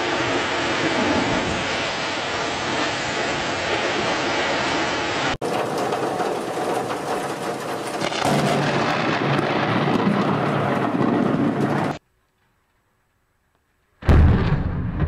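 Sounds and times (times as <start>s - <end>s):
heavy rain: 0.0s - 12.0s
loud thunderclap: 0.0s - 12.0s, 14.0s - 15.0s
thunder rumbling: 0.0s - 12.0s, 14.0s - 15.0s
wind: 0.0s - 15.0s.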